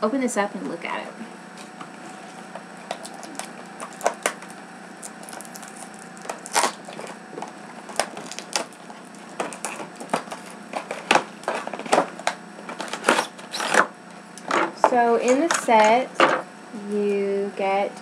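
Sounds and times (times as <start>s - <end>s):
packaging crackling and tearing: 1.6s - 13.9s.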